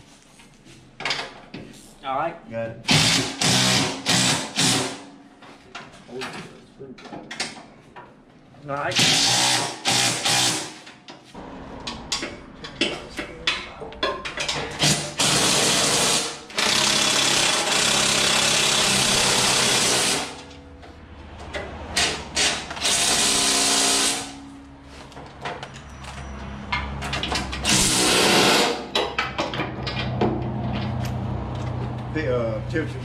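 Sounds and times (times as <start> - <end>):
impact driver hammering: 2.9 - 5.1, 9.0 - 10.9, 14.5 - 20.5, 27.6 - 29.2.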